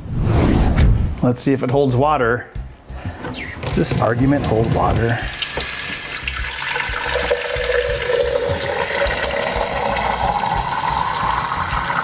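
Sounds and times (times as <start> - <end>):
water filling a vessel: 3.2 - 12.0.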